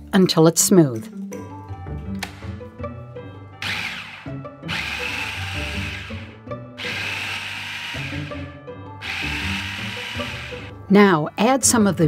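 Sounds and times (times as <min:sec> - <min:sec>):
food processor whirring in bursts: 0:03.6 - 0:10.7.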